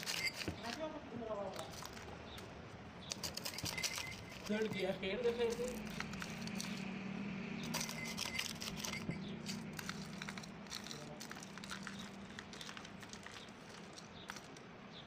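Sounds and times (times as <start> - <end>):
spoon and ice clicking on bowl: 3.1 - 6.8, 7.6 - 14.6.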